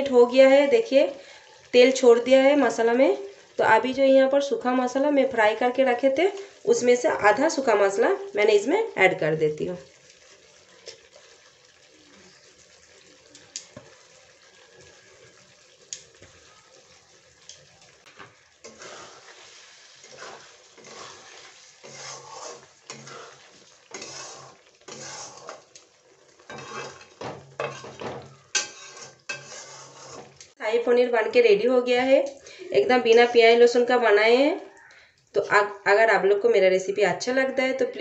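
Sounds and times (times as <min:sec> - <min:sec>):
spatula scraping metal pan: 0:18.6 - 0:25.8, 0:26.4 - 0:30.6.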